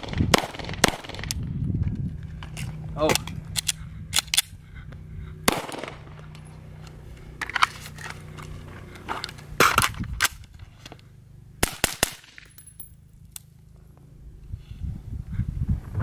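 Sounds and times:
rifle gunshots: 0.0 - 1.4, 5.4 - 6.3, 11.6 - 12.5.

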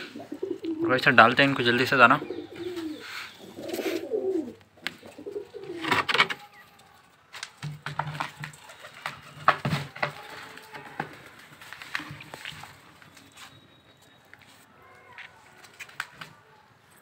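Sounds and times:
pigeons cooing: 0.0 - 6.6.

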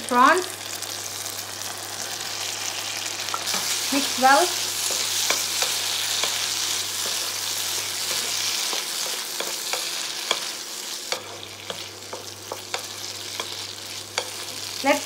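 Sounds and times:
prawns sizzling in a wok: 0.0 - 15.0
spatula tapping and scraping pan: 4.8 - 14.6.

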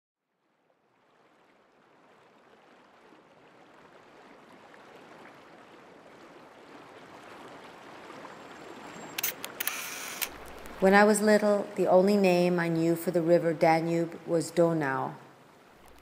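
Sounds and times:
river water rushing: 1.0 - 11.2, 15.3 - 16.0.

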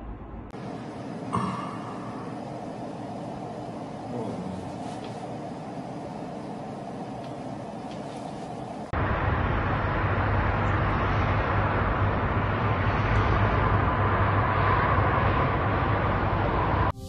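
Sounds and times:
rushing roar of city noise: 0.0 - 16.9
low hum: 0.0 - 17.0.

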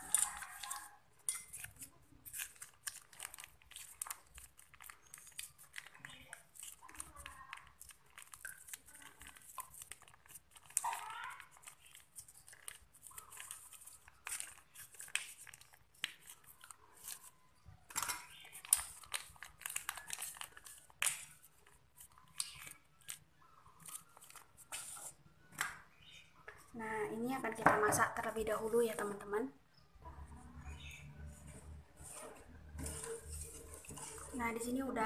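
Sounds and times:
plastic sachets crinkling: 0.0 - 26.2, 31.0 - 35.0.

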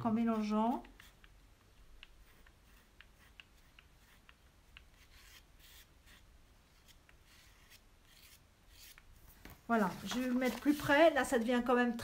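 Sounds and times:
palette knife scraping paper: 2.0 - 9.0.

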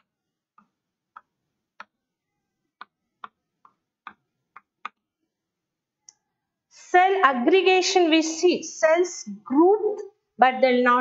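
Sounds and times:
chalk tapping on chalkboard: 2.8 - 5.0.

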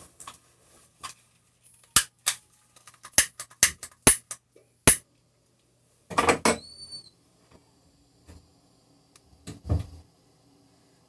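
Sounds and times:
faint high whistle: 6.6 - 7.2.

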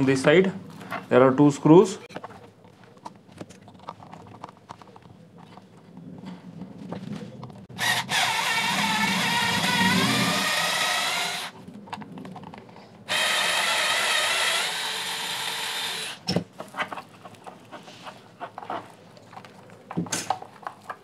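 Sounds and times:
parts clicking and knocking: 2.0 - 21.0
electric screwdriver motor whine: 7.8 - 11.5, 13.1 - 16.2.

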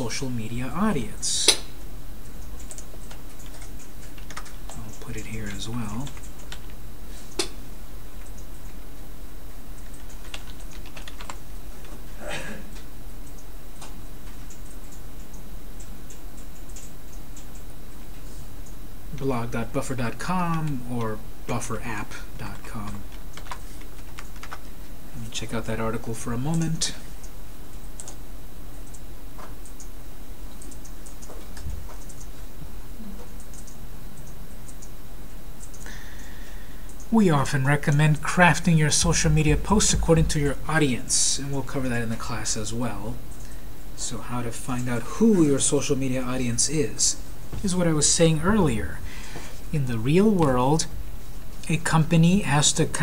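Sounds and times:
low background hum: 0.0 - 53.0
keyboard typing: 2.3 - 7.5, 9.8 - 12.0, 22.5 - 24.8, 27.9 - 28.2, 30.5 - 32.3, 33.4 - 34.9
computer mouse clicks: 2.4 - 7.6, 9.8 - 12.0, 22.8 - 24.7, 27.8 - 28.2, 30.5 - 32.3, 33.3 - 34.9, 35.6 - 35.9.

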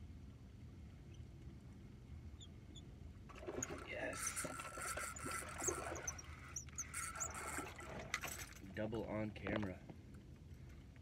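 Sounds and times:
fishing reel gear whine with clicks: 3.7 - 8.6.

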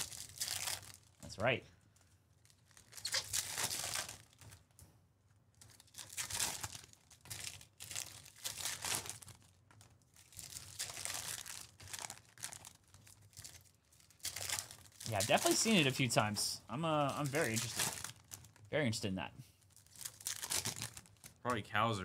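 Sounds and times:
foil wrappers crinkling and tearing: 0.0 - 1.2, 2.0 - 4.8, 5.5 - 16.3, 17.0 - 18.7, 19.6 - 21.4.

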